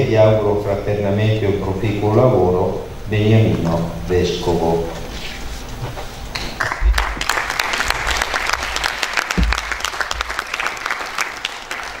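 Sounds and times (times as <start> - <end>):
audience applauding: 6.4 - 12.0
low thumps: 9.3 - 10.4.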